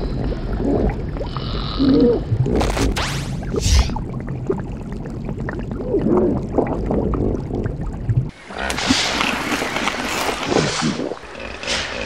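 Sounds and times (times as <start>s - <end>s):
water gurgling and bubbling: 0.0s - 12.0s
sea water splash and rush: 8.3s - 12.0s.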